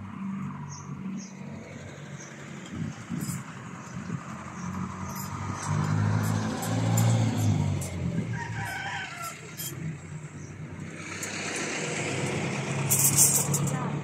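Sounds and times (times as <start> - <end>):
truck engine running: 1.0 - 14.0
rooster crowing: 8.2 - 9.8.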